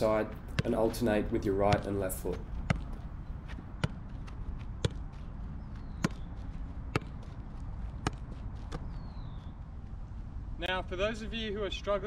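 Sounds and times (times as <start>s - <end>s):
football thudding on foot: 1.6s - 5.2s, 5.8s - 6.3s, 6.9s - 7.3s.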